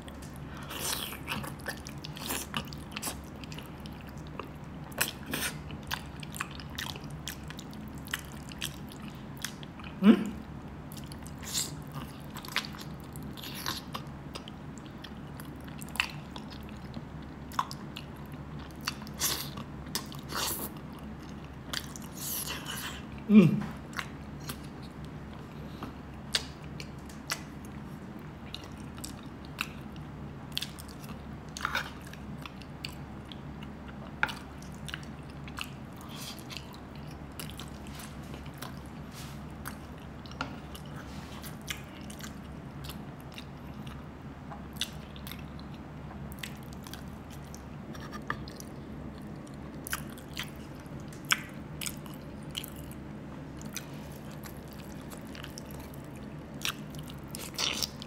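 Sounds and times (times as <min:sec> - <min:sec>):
chewing and lip smacking: 0:00.0 - 0:10.0, 0:23.9 - 0:58.0
steady low hum: 0:00.0 - 0:58.0.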